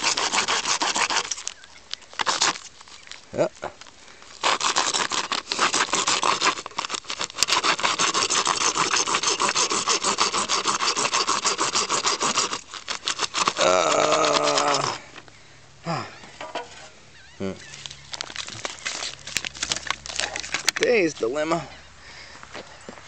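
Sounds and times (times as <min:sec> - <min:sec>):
handsaw rasping through plastic: 0:00.0 - 0:01.6, 0:02.2 - 0:02.7, 0:04.3 - 0:15.1.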